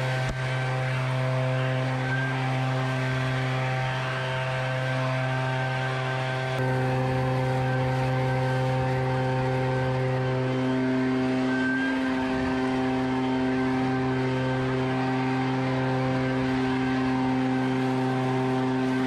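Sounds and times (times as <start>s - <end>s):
leaf blower running: 0.0s - 19.0s.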